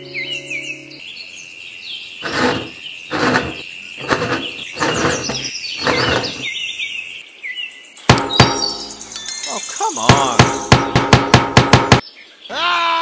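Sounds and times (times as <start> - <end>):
birds chirping: 0.0 - 13.0
rasping scrapes of twisted handle: 2.2 - 6.5.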